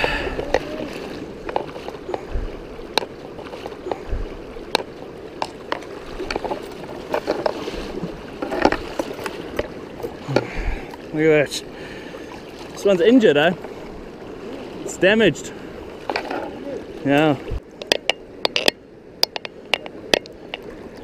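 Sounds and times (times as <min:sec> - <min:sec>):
river water rushing: 0:00.0 - 0:21.0
dull low thumps: 0:02.2 - 0:02.6, 0:04.0 - 0:04.5.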